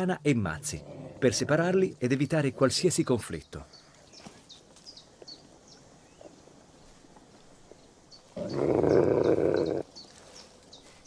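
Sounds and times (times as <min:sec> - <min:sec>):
faint birdsong: 0:00.0 - 0:11.0
wolf growling: 0:00.6 - 0:01.9, 0:08.4 - 0:09.9.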